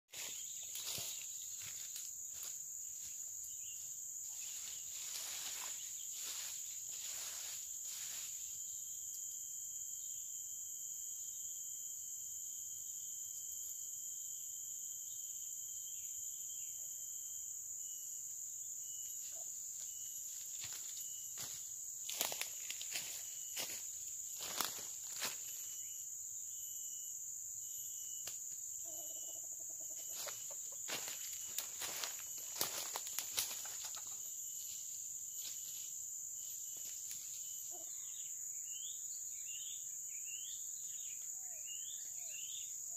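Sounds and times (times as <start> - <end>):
insects droning: 0.1 - 42.9
thin insect whine: 0.1 - 42.9
dry leaves rustling: 4.4 - 8.5, 30.1 - 34.8.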